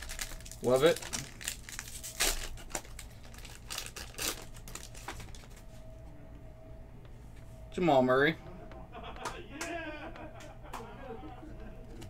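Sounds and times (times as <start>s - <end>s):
foil wrapper crinkling and tearing: 0.0s - 5.6s.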